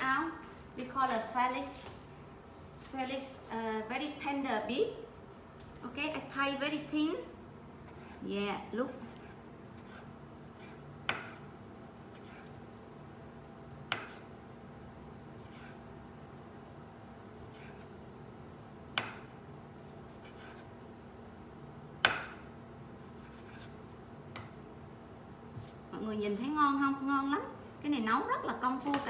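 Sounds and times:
knife cutting and scraping: 8.9 - 12.8, 15.2 - 18.0, 19.7 - 20.8, 22.9 - 23.9.

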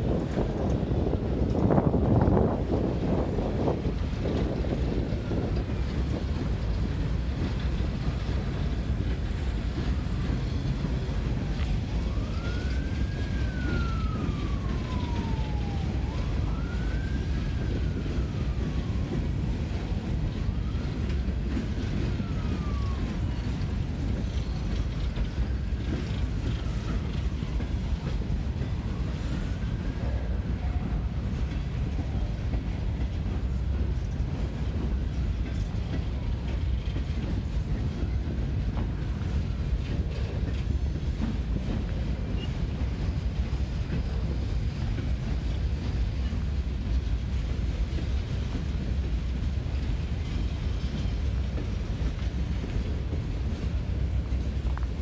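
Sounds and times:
freight train cars rumbling: 0.0 - 55.0
faint siren wailing: 0.1 - 6.7, 10.2 - 34.1.

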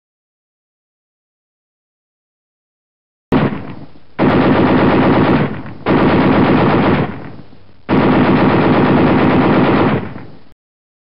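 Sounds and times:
machine-gun bursts: 3.3 - 10.2.

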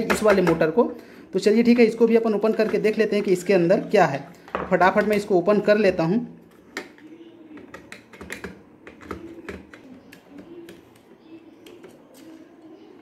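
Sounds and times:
plastic parts clicking and tapping: 6.7 - 12.4.

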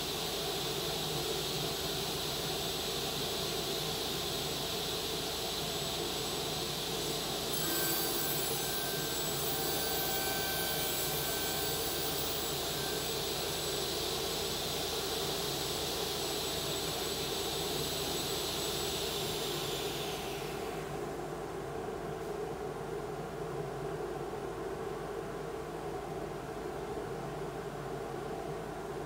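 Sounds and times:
table saw whining: 0.1 - 21.0.

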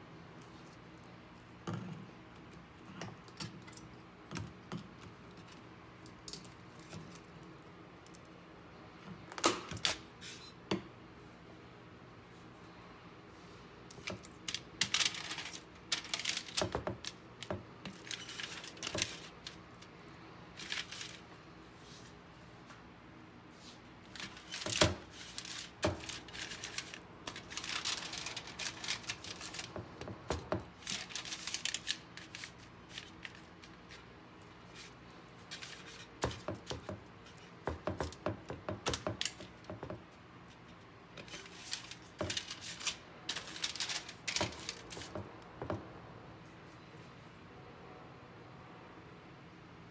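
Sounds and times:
aluminium foil crinkling: 13.9 - 19.9, 20.5 - 21.3, 24.0 - 37.5, 41.2 - 45.3.

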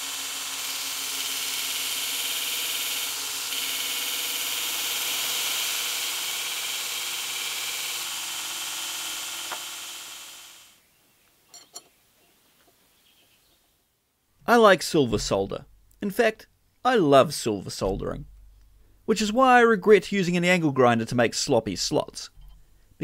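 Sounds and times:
belt grinder grinding steel: 0.0 - 10.7.

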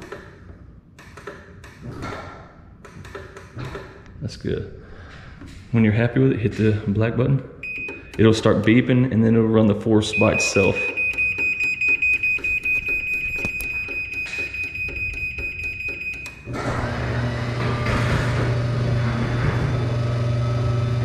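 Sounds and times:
high-pitched beeping: 10.1 - 16.5
garage door motor humming: 10.2 - 21.0.

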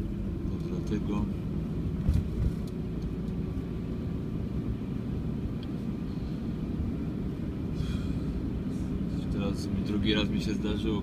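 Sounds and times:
tyres on road: 0.0 - 11.0
van engine rumble: 0.0 - 11.0.

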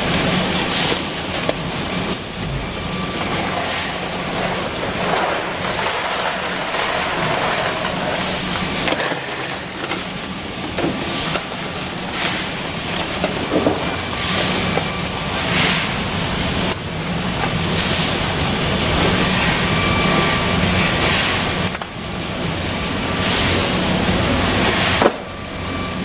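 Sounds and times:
metal castings clattering into bin: 0.0 - 2.6, 3.2 - 8.3, 8.9 - 17.6, 21.7 - 22.0
conveyor belt metallic rattle: 0.0 - 26.0
factory machinery humming: 0.0 - 26.0.

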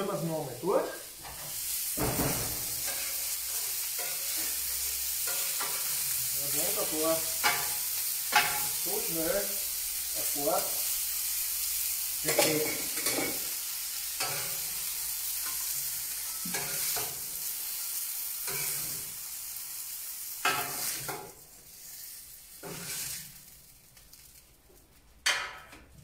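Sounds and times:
food sizzling on a hot plate: 0.0 - 26.0
grill lid clunk: 2.0 - 3.0
spatula scraping: 22.6 - 23.4.

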